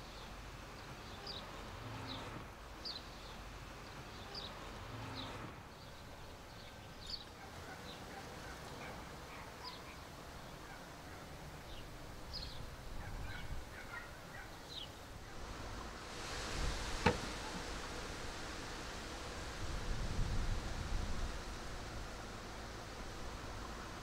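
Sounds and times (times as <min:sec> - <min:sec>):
birds chirping: 0:00.0 - 0:15.1
low background hiss: 0:00.0 - 0:24.0.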